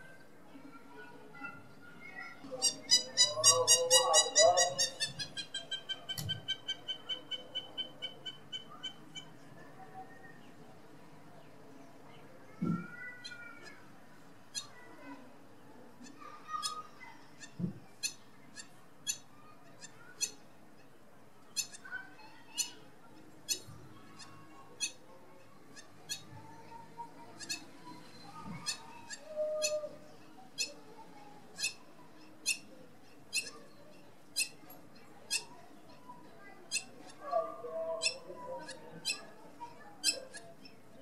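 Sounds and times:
faint gliding bird calls: 1.4s - 10.5s, 23.4s - 33.7s
bird giving sharp high calls: 2.6s - 9.3s, 28.6s - 30.0s, 31.6s - 31.8s.

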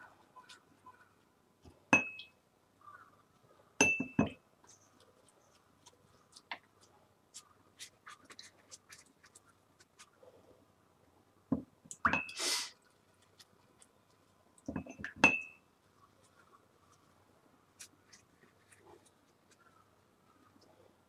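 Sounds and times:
brush dabbing on mushroom: 0.0s - 1.9s, 4.4s - 10.8s, 12.4s - 14.7s, 15.6s - 21.0s
brush clinking on ceramic cup: 2.0s - 2.3s, 3.8s - 4.4s, 14.7s - 15.6s.

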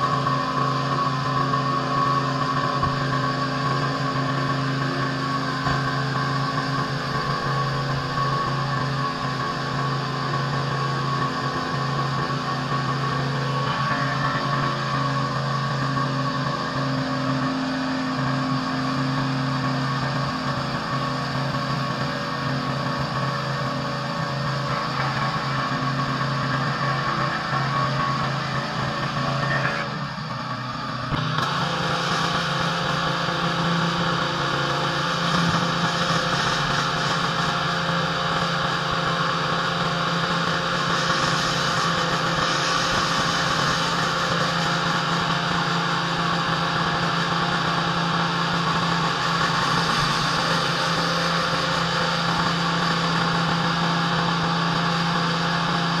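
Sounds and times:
pressure washer engine running: 0.0s - 56.0s
high-pressure water spray hiss: 40.7s - 45.7s.

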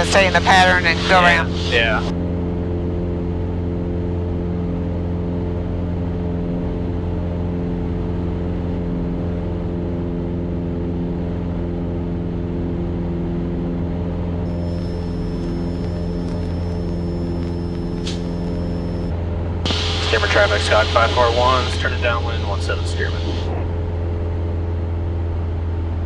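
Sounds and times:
aircraft engine and propeller drone: 14.5s - 19.1s.

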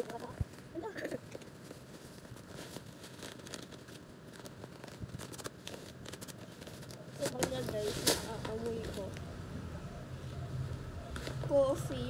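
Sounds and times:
plastic bags crinkling: 0.0s - 9.0s.

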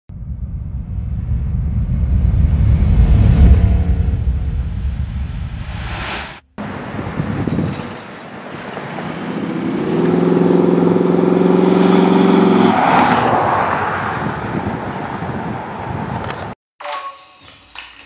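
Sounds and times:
tyre and wind noise: 1.2s - 9.3s, 12.6s - 16.6s
car engine passing: 7.8s - 16.0s.

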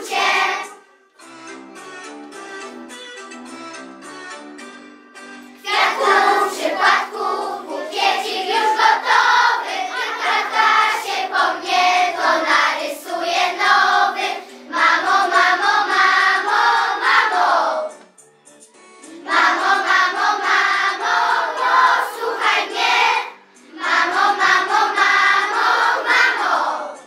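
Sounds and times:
children singing together: 0.0s - 0.8s, 5.6s - 18.0s, 19.1s - 27.0s.

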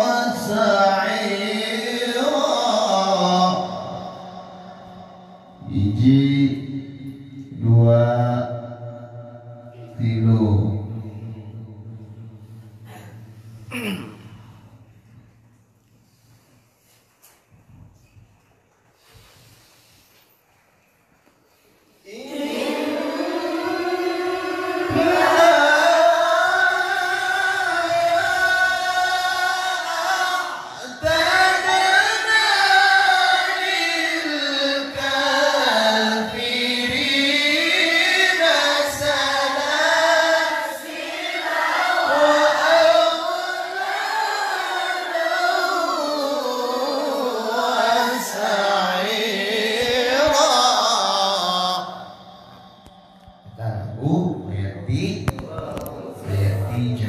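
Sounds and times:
women chanting together: 22.1s - 27.2s, 39.7s - 45.8s.

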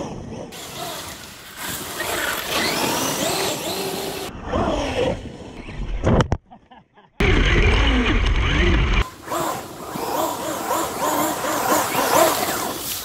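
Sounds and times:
electric motor whining: 0.6s - 5.1s, 7.2s - 13.0s.

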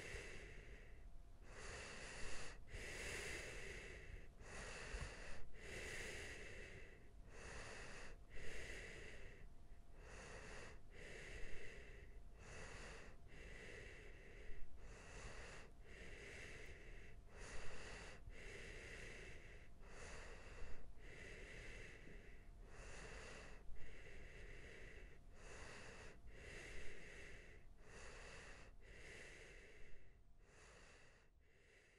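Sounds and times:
heavy rhythmic breathing: 0.0s - 31.9s.

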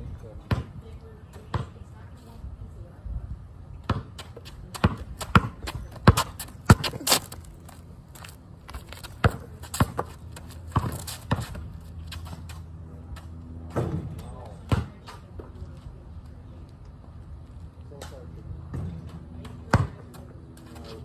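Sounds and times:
basketball bouncing on asphalt: 0.4s - 1.9s, 3.8s - 15.7s, 18.1s - 20.9s.

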